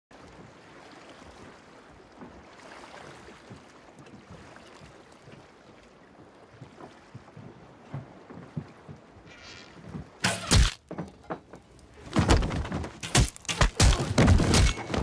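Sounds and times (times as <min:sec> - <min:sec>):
water and wind wash: 0:00.1 - 0:10.8
water lapping knocks: 0:00.1 - 0:15.0.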